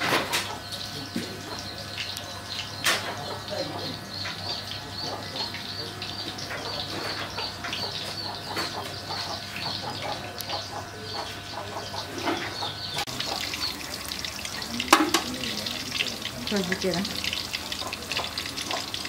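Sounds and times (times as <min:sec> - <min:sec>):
oil crackling and sizzling in wok: 0:13.0 - 0:19.0.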